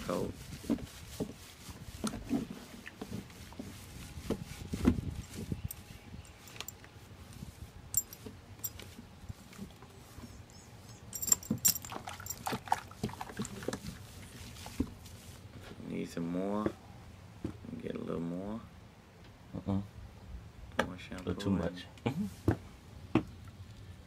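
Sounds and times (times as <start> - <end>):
dog being washed in tub: 11.5 - 15.4.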